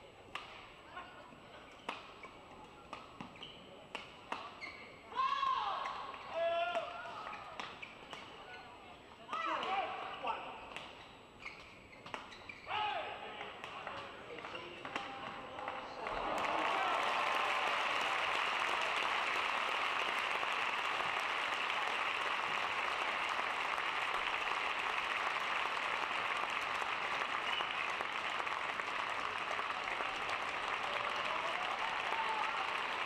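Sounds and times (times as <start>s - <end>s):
crowd applauding: 15.6s - 33.0s.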